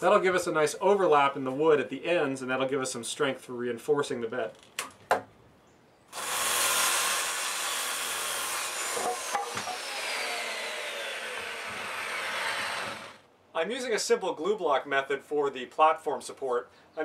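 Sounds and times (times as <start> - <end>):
circular saw cutting wood: 6.1 - 13.2.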